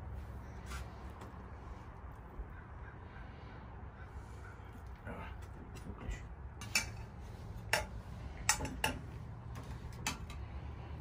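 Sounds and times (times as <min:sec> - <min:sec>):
metal skewers clinking on plates: 0:06.6 - 0:09.1.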